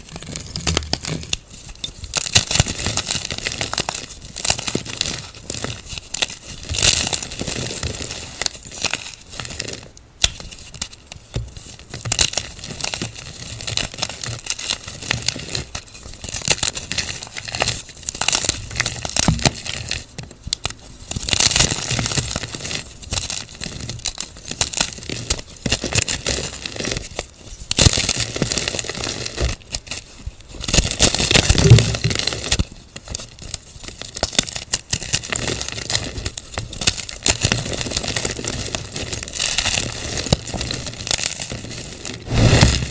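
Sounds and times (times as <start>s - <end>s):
chalk crushed crackling: 20.8s - 42.9s.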